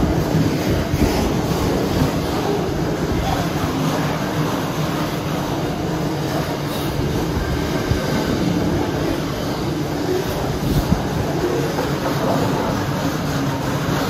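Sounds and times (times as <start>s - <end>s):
freight train rolling past: 0.0s - 14.0s
steel wheels on rails: 0.0s - 14.0s.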